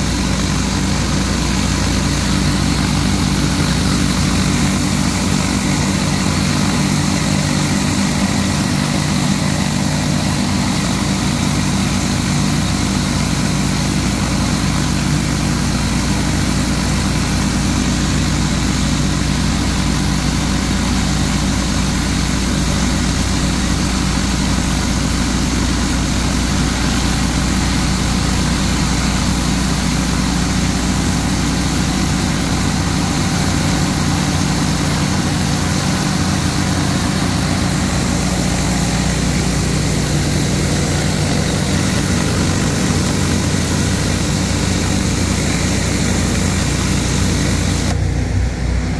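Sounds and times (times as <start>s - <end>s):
surface cleaner spraying water: 0.0s - 48.3s
pressure washer engine droning: 0.0s - 48.9s.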